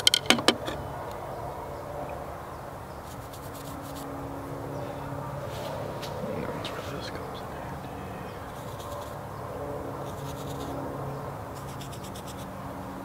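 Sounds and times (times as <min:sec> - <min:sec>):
steady low drone: 0:03.9 - 0:11.9.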